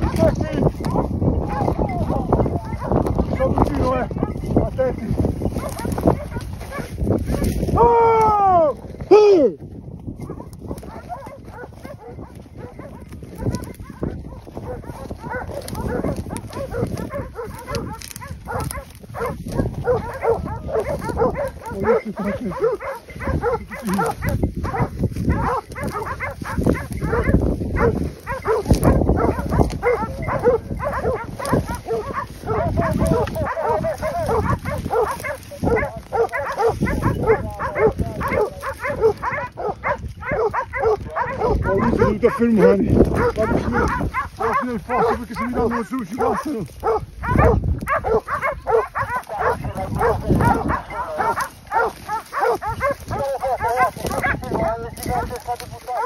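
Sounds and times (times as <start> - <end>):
hounds baying and barking: 0.0 - 56.0.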